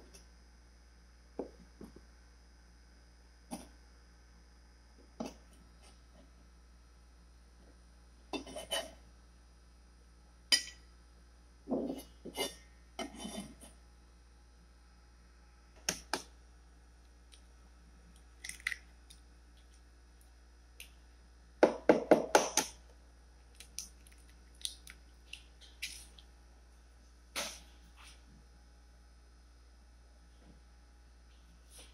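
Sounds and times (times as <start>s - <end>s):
eggs cracked into bowl: 18.4s - 19.2s.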